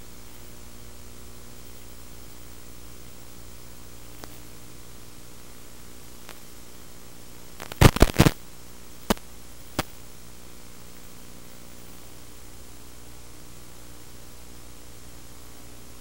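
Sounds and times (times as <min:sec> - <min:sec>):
static hiss: 0:00.0 - 0:16.0
loud sharp crackles: 0:07.6 - 0:08.4.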